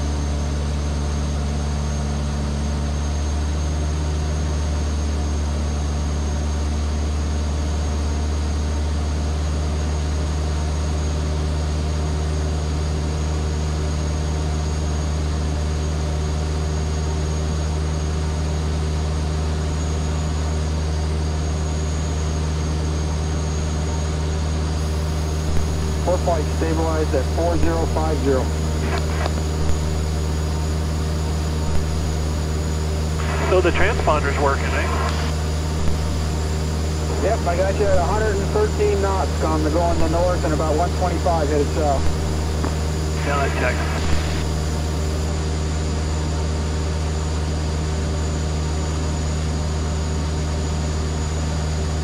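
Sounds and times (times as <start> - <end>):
aircraft engine and propeller drone: 0.0 - 52.0.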